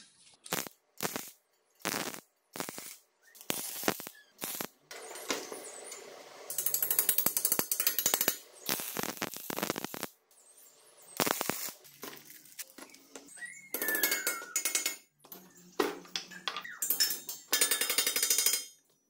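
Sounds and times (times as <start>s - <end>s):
welding crackle: 0.3s - 15.0s
rapid metallic ticking: 6.5s - 10.1s
metal taps and scrapes: 14.1s - 19.0s.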